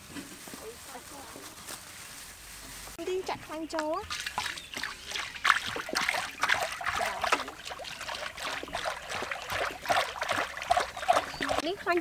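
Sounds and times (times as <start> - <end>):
oil splashing: 3.8 - 12.0.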